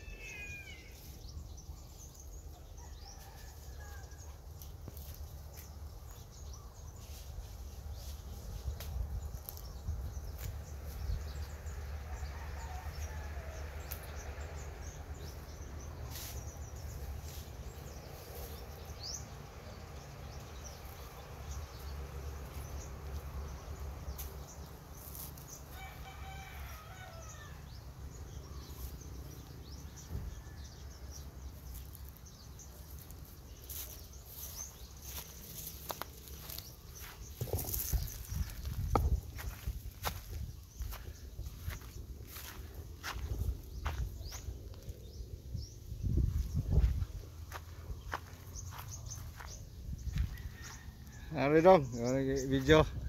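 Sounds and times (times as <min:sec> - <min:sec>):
birds calling: 0:00.0 - 0:04.3, 0:09.2 - 0:53.0.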